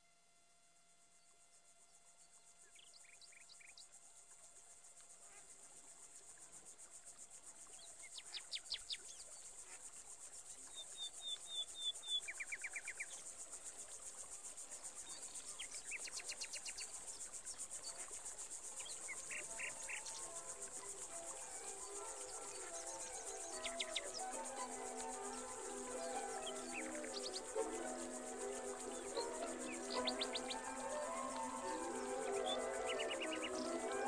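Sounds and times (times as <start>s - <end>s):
high insect trill: 1.5s - 34.0s
birds chirping: 21.3s - 34.0s.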